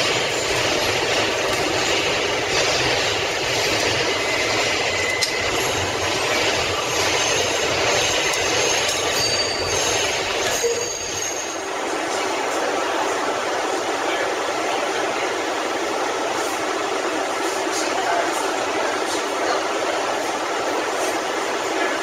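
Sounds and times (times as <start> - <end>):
subway wheels rumbling on rail: 0.0 - 22.0
high wheel squeals: 3.6 - 11.7.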